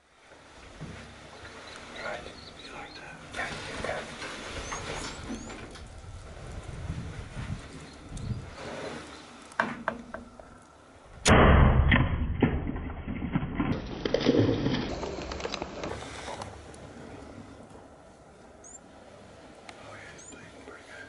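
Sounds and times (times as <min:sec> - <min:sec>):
arrow hitting animal thump: 0:11.2 - 0:12.8
animal scrambling on gravel: 0:13.7 - 0:17.2.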